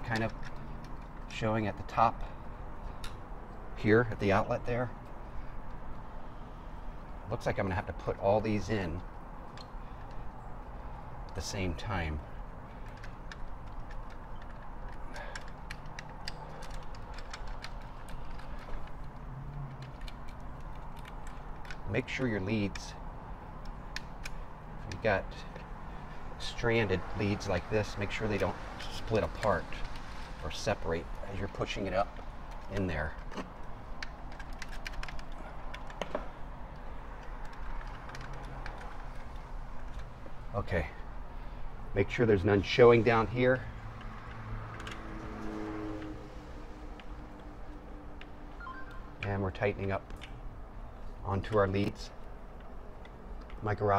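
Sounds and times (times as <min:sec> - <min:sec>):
wires clicking against plastic housing: 0:00.0 - 0:06.2, 0:08.4 - 0:41.2, 0:43.2 - 0:48.4, 0:49.0 - 0:53.9
small clicks and ticks: 0:12.7 - 0:22.9, 0:27.1 - 0:40.8.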